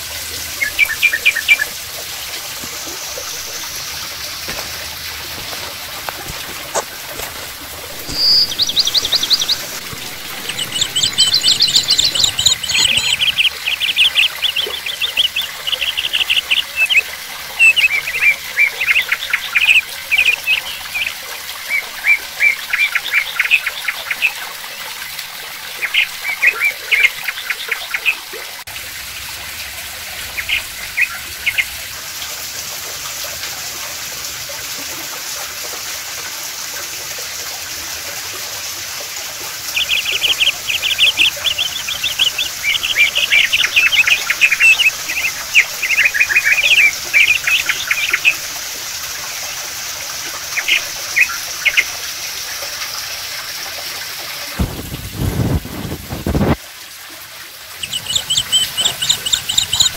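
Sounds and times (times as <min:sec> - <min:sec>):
water trickling and splashing: 0:00.0 - 0:59.9
birds chirping in high trills: 0:00.5 - 0:04.6, 0:06.2 - 0:24.4, 0:39.6 - 0:48.6, 0:57.8 - 0:59.9.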